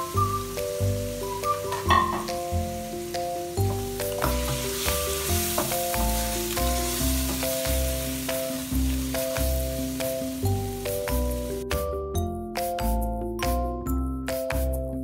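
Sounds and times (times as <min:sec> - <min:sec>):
chicken sizzling in hot oil: 0:00.0 - 0:11.6
melodic backing track with bass beat: 0:00.0 - 0:15.0.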